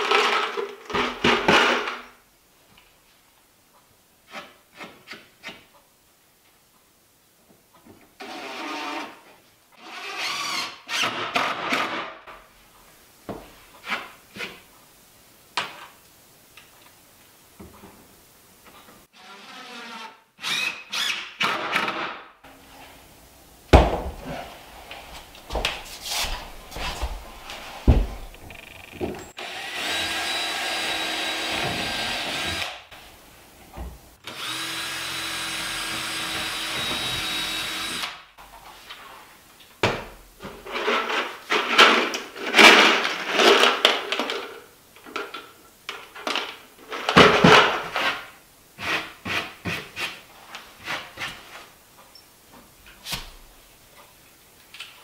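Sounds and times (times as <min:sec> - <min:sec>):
knocks and scraping handling noises: 0:23.8 - 0:29.3, 0:39.9 - 0:53.4
cordless drill running: 0:29.4 - 0:32.8, 0:34.2 - 0:38.2.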